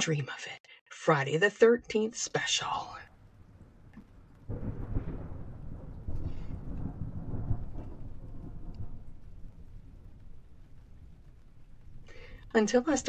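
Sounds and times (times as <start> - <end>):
rain: 2.3 - 13.0
low rumble of thunder: 3.0 - 13.0.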